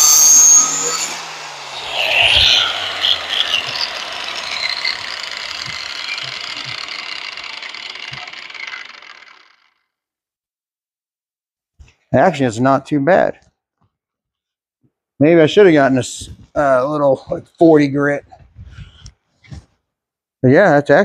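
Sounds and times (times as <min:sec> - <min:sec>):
angle grinder winding down: 0:00.0 - 0:09.8.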